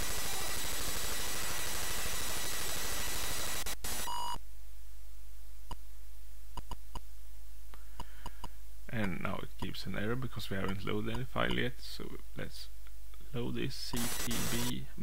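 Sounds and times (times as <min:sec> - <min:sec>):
harsh rapid data buzzing: 0:00.0 - 0:04.4, 0:13.9 - 0:14.8.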